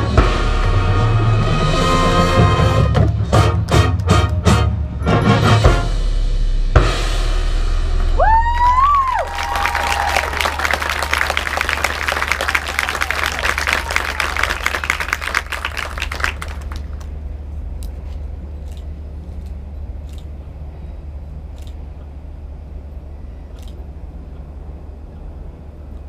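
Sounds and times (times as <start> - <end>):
low rumble: 4.7 - 26.0
audience applause: 8.4 - 17.2.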